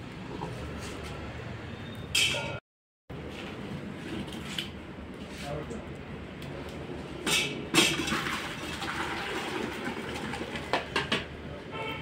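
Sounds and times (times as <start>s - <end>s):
liquid pouring into pot: 7.8s - 10.7s.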